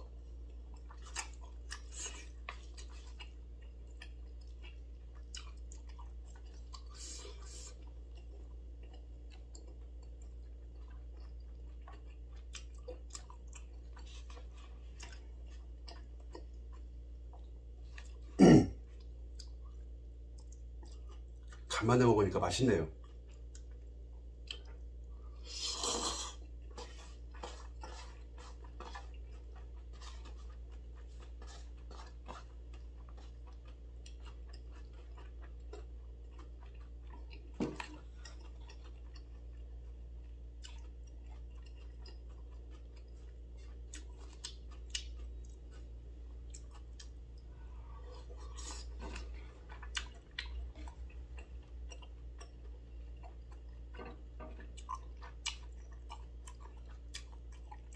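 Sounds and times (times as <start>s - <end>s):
person chewing: 0.0s - 21.7s, 22.9s - 57.9s
steady low hum: 0.0s - 57.9s
person slurping noodles: 25.4s - 26.4s.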